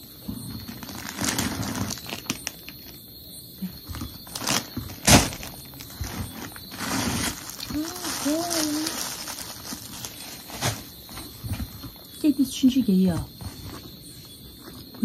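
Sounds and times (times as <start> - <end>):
plastic bags rustling and crinkling: 0.3 - 3.0, 3.7 - 12.2
sharp crackles: 0.6 - 3.0, 3.9 - 11.6.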